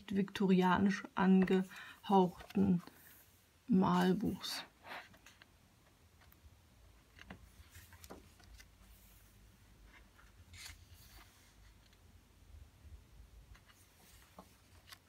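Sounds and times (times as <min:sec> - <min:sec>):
paper pages turning: 0:02.3 - 0:03.2, 0:07.1 - 0:12.0, 0:13.5 - 0:15.0.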